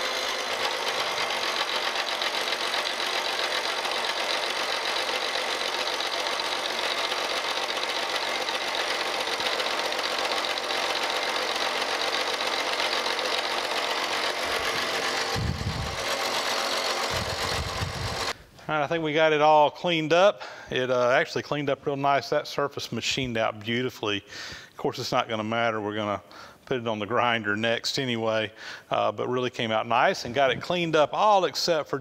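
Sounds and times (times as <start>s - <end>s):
milling machine cutting metal: 0.0s - 18.4s.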